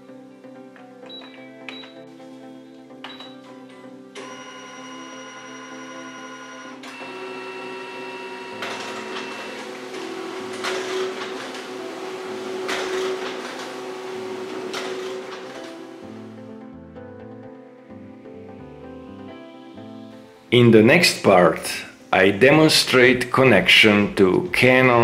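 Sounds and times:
paper feeding through printer: 0:04.2 - 0:16.5
printer motor whine: 0:04.2 - 0:16.6.

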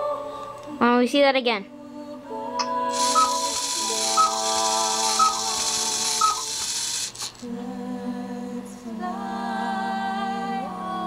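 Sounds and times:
cuckoo clock whistle pipes: 0:03.0 - 0:06.7.

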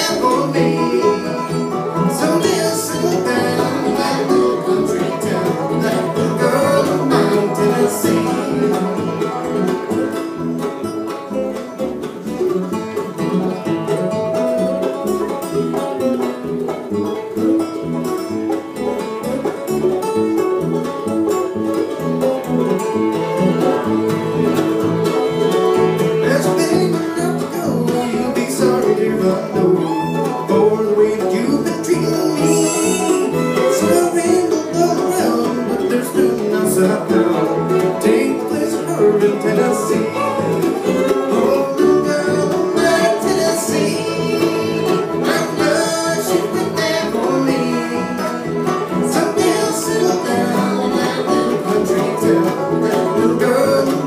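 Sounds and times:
acoustic guitar: 0:00.0 - 0:54.0
banjo: 0:00.0 - 0:54.0
fiddle: 0:00.0 - 0:54.0
mandolin: 0:00.0 - 0:54.0
upright bass: 0:00.0 - 0:54.0.

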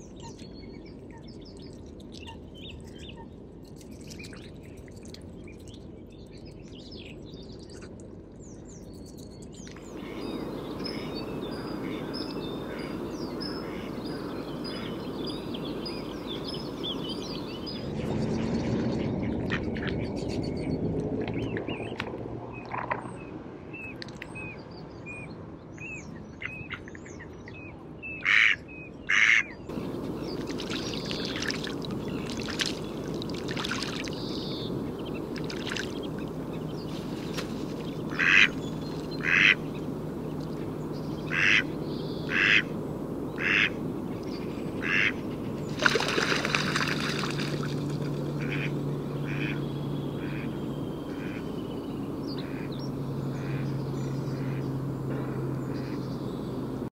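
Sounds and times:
mallard quacking: 0:10.9 - 0:14.9, 0:28.2 - 0:29.5, 0:38.1 - 0:38.6, 0:39.2 - 0:39.7, 0:41.3 - 0:41.7, 0:42.3 - 0:42.7, 0:43.4 - 0:43.8, 0:44.8 - 0:45.2, 0:48.4 - 0:51.5, 0:52.4 - 0:52.7, 0:53.3 - 0:53.7
splashing of duck taking off: 0:29.7 - 0:39.8, 0:44.8 - 0:50.5.

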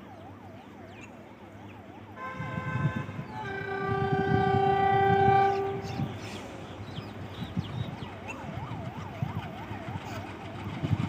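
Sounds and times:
warbling siren: 0:00.0 - 0:06.1, 0:07.9 - 0:11.0
locomotive air horn: 0:02.2 - 0:06.3.

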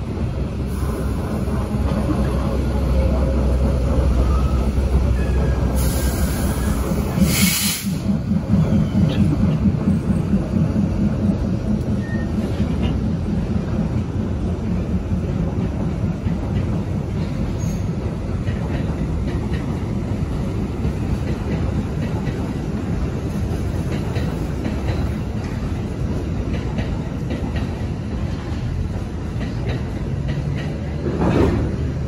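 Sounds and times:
train low rumble: 0:00.0 - 0:32.0
wheels clicking over rail joints: 0:08.0 - 0:32.0.

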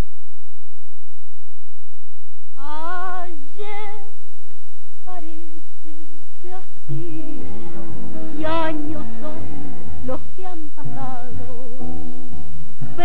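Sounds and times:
old soundtrack hiss: 0:00.0 - 0:13.0
woman singing with vibrato: 0:02.6 - 0:04.1, 0:05.1 - 0:05.5, 0:06.4 - 0:13.0.

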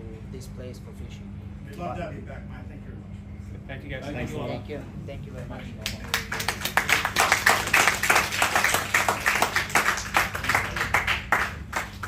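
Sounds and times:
people applauding: 0:05.8 - 0:12.0.

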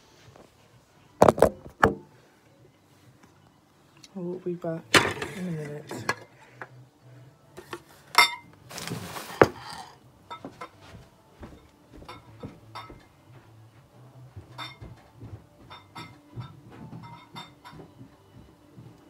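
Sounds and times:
crockery and glass clinking: 0:07.7 - 0:13.1, 0:14.4 - 0:18.9.

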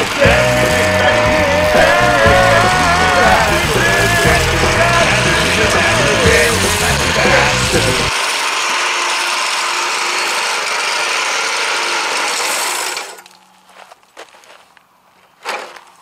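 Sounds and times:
rock music: 0:00.0 - 0:08.2
string trimmer engine running: 0:00.0 - 0:13.4
trimmer line thrashing gravel: 0:00.0 - 0:14.2.

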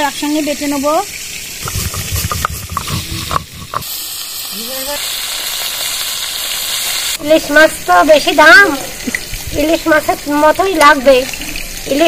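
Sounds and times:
fish sizzling in oil: 0:00.0 - 0:12.0
spatula stirring in wok: 0:01.6 - 0:03.9.

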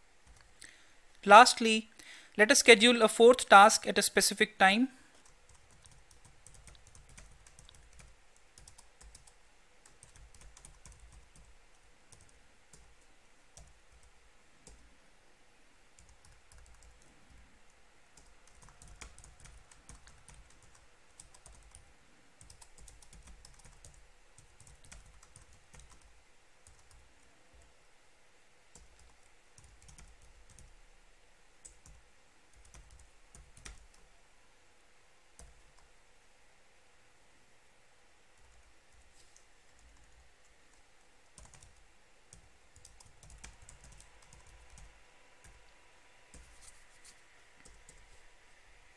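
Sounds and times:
typing on computer keyboard: 0:05.2 - 0:13.0, 0:13.6 - 0:14.8, 0:16.0 - 0:17.1, 0:18.2 - 0:21.8, 0:22.4 - 0:27.0, 0:28.7 - 0:30.7, 0:31.6 - 0:34.0, 0:41.4 - 0:45.6.

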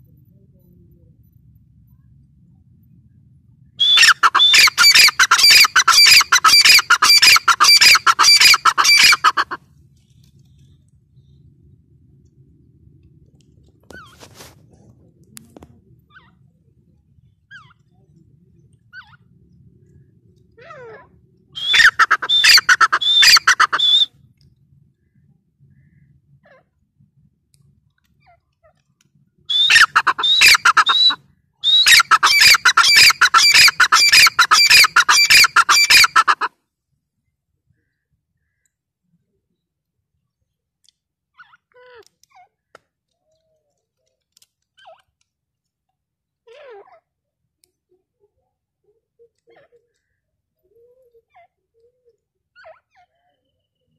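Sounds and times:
francolin calling: 0:03.8 - 0:09.5, 0:21.6 - 0:24.1, 0:29.5 - 0:36.5.

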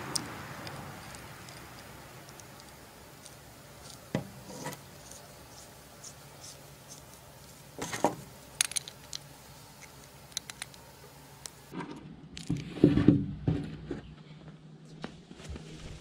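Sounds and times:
small steel parts clinking: 0:00.2 - 0:04.0, 0:08.6 - 0:10.8.

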